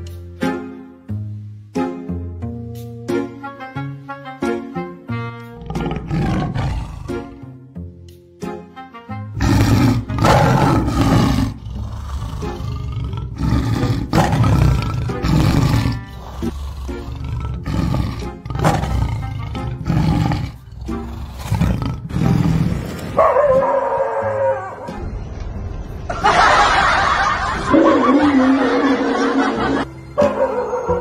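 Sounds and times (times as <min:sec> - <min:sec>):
jaunty background music: 0:00.0 - 0:31.0
recorded tiger roars: 0:05.6 - 0:07.4, 0:09.4 - 0:23.2.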